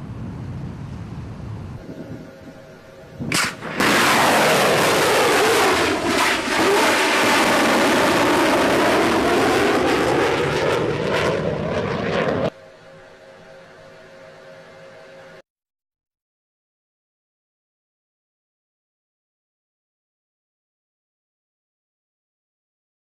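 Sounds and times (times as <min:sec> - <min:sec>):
jet craft roaring past: 0:01.8 - 0:13.7.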